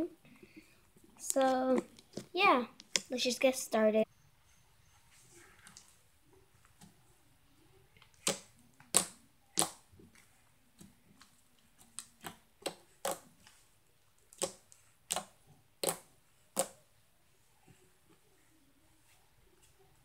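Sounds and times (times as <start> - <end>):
slime popping and clicking: 8.1 - 9.8, 14.3 - 16.8.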